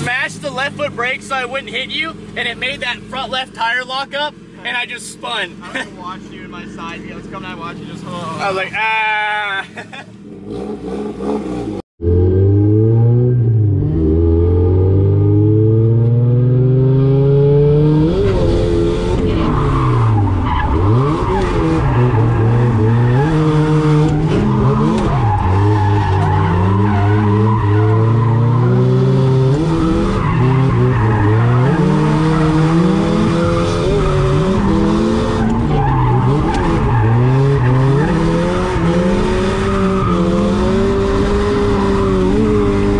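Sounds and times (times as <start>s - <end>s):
tyres skidding and squealing: 0.0s - 15.5s, 17.9s - 42.9s
car engine revving: 10.1s - 42.9s.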